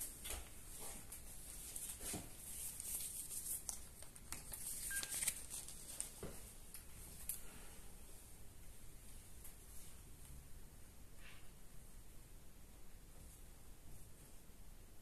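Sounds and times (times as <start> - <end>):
short electronic camera beep: 4.9 - 5.2.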